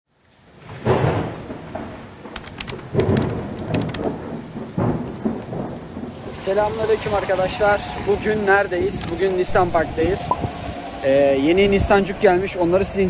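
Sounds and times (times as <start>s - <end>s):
rain hissing: 0.1s - 13.0s
thunder rolling: 0.4s - 13.0s.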